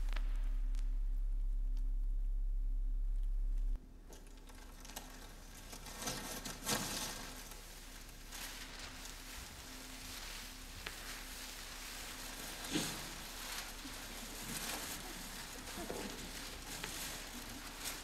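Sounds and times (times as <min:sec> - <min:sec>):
low hum: 0:00.0 - 0:18.0
newspaper crumpling and rustling: 0:04.6 - 0:18.0.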